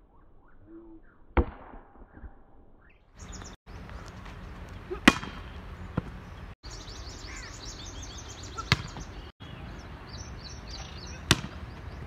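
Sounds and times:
birds chirping: 3.1s - 12.0s
volleyball smack: 4.9s - 6.2s, 8.6s - 9.1s, 11.3s - 11.6s.

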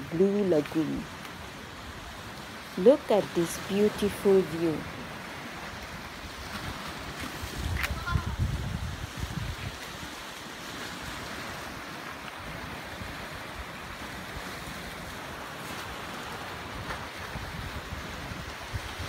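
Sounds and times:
sea waves breaking on rocks: 0.2s - 19.0s
wind rumbling on microphone: 4.6s - 19.0s.

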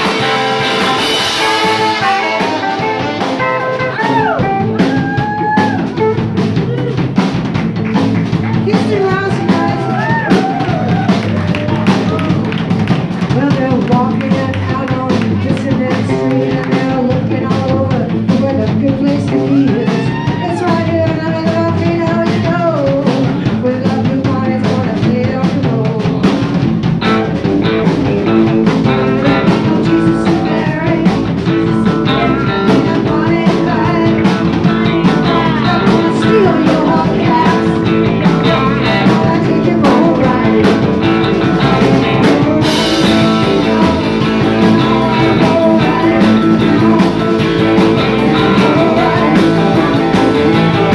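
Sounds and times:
bass guitar: 0.0s - 50.9s
drum kit: 0.0s - 50.9s
electric guitars: 0.0s - 50.9s
women singing: 8.5s - 10.6s, 13.3s - 26.3s, 28.2s - 50.9s.

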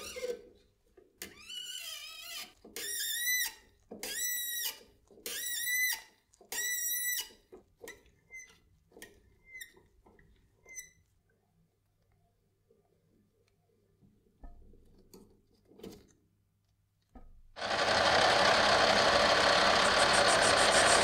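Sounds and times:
threading die squealing on metal rod: 1.3s - 7.4s.

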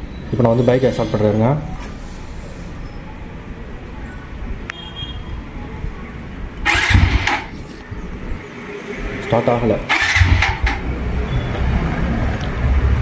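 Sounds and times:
electric starter cranking engine: 6.7s - 7.6s, 9.9s - 10.8s.

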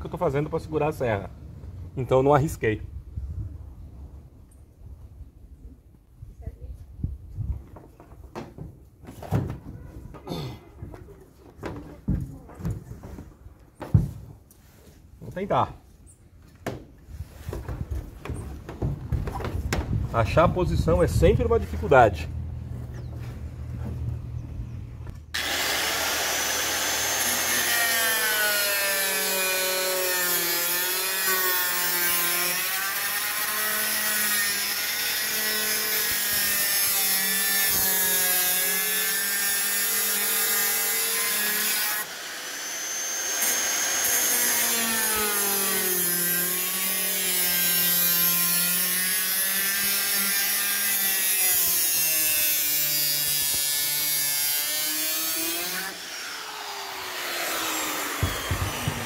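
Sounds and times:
circular saw cutting sheet metal: 25.4s - 59.0s.

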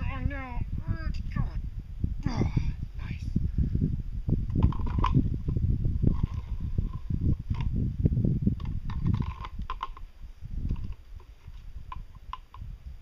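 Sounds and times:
hard parts clicking and knocking: 8.6s - 10.0s.

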